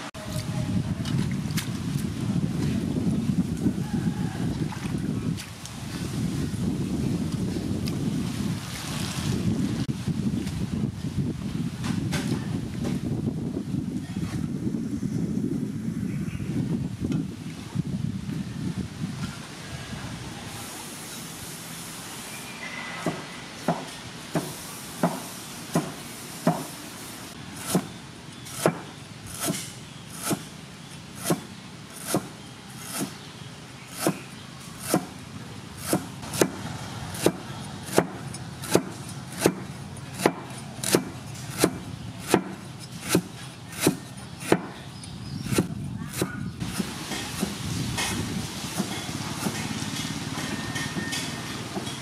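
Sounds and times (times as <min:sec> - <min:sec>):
cleaver chopping on wooden block: 0:27.6 - 0:27.9, 0:28.5 - 0:30.4, 0:31.2 - 0:33.2, 0:34.0 - 0:34.2, 0:34.8 - 0:35.1, 0:35.8 - 0:44.8.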